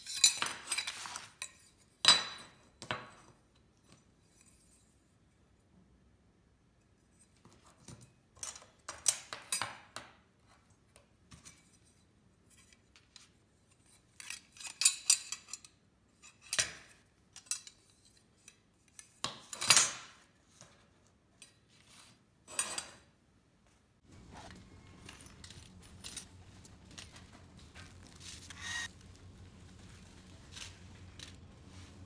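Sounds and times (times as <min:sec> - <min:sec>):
metal rails clinking and scraping: 0:24.5 - 0:32.0.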